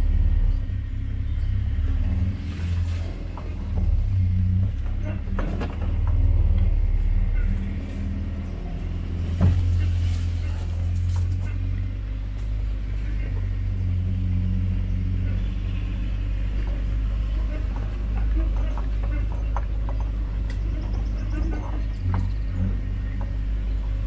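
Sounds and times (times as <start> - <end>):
vehicle engine running: 0.0 - 24.0
knocks and rattles: 3.1 - 12.6, 16.5 - 24.0.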